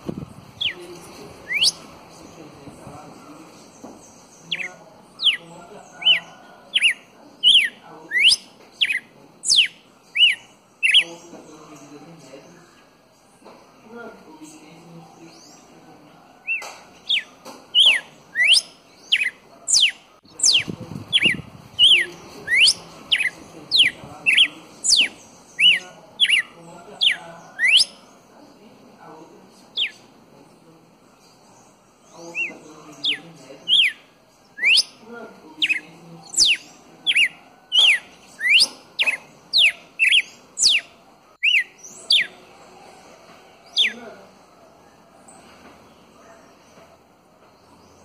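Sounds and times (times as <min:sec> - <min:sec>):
bird singing whistled notes: 0:00.6 - 0:01.9, 0:04.1 - 0:11.2, 0:16.4 - 0:28.1, 0:29.8 - 0:30.0, 0:32.0 - 0:35.0, 0:35.6 - 0:42.4.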